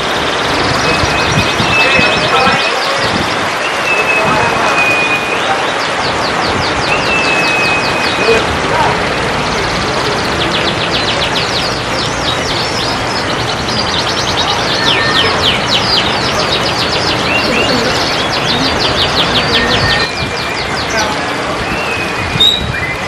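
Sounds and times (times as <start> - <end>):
canaries singing: 0.0 - 23.0
steady background noise: 0.0 - 23.0.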